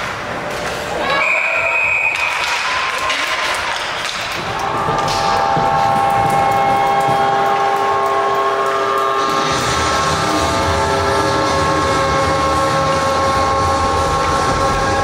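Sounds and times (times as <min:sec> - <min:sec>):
goal horn chord: 0:07.0 - 0:15.0.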